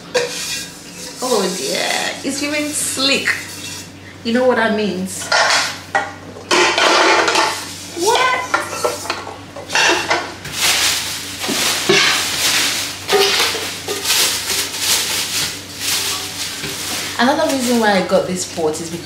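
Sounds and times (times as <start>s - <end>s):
metal pots clattering together: 0.0s - 2.0s, 5.2s - 18.1s
plastic wrapping crinkling: 9.8s - 19.0s.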